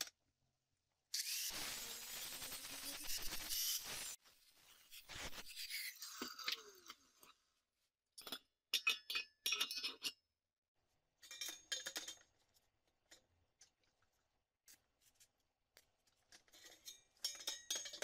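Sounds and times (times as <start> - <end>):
metal pieces clinking on steel frame: 11.2 - 12.2.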